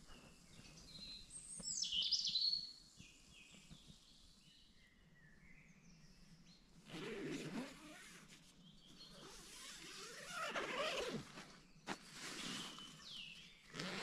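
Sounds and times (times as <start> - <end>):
birds singing: 0.0 - 14.0.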